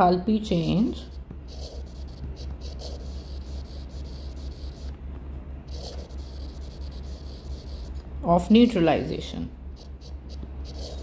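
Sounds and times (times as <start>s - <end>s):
low electrical hum: 0.0s - 11.0s
stylus scratching on glass: 0.5s - 4.9s, 5.7s - 8.0s, 9.8s - 11.0s.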